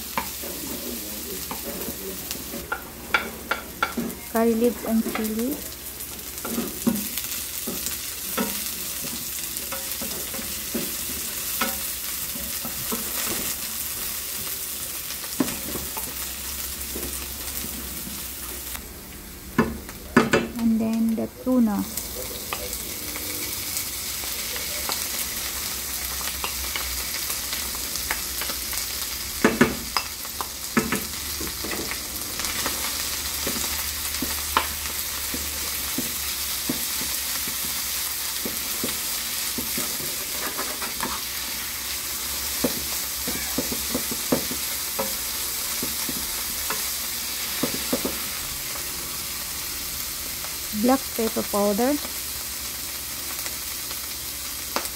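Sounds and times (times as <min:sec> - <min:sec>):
food sizzling in a pan: 0:00.0 - 0:54.9
wooden spoon scraping a pan: 0:38.4 - 0:41.7.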